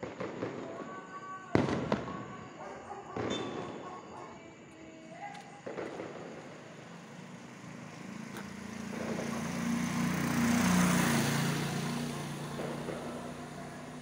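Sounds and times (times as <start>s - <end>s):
vehicle passing by: 6.4s - 14.0s.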